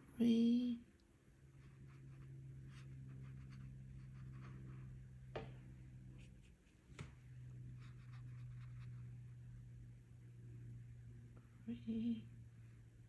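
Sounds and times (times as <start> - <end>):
steady low hum: 0.0 - 13.0
brush strokes on paper: 1.6 - 5.0, 7.7 - 9.2.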